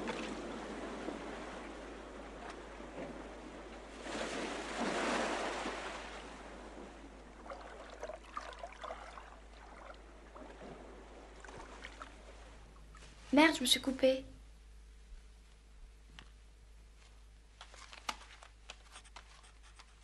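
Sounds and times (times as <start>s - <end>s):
surf washing in: 0.0s - 12.6s.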